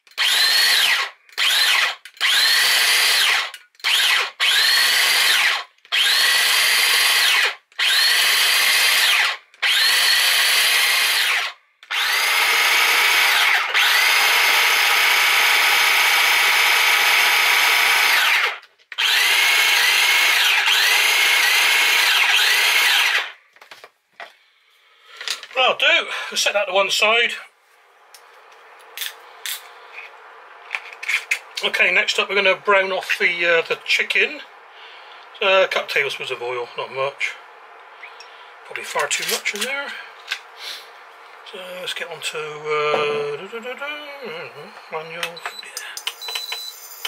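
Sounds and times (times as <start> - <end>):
mini chopper motor whining: 0.0 - 23.4.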